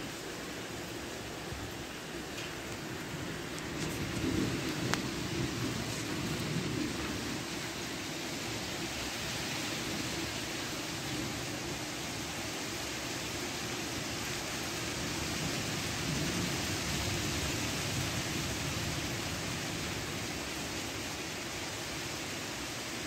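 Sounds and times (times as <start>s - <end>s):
rain hissing: 0.0s - 23.0s
thunder rumbling: 3.0s - 9.0s.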